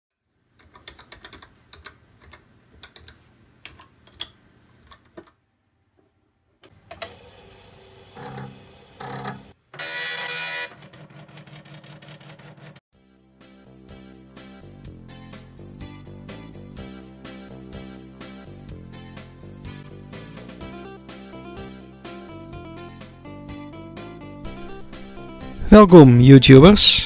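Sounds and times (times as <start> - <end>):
computer keyboard typing: 0.6 - 5.4
dot-matrix printer printing: 6.9 - 12.8.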